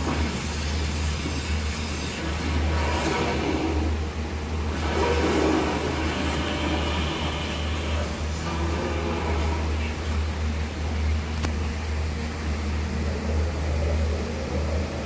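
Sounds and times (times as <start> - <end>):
steady low hum: 3.8 - 15.0.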